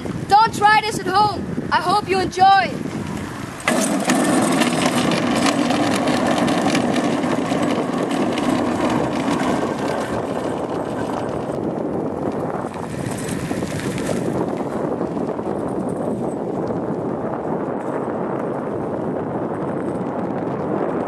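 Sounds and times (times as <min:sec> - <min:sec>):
go-kart rumbling on asphalt: 0:02.8 - 0:21.0
rattling clatter: 0:03.6 - 0:14.6.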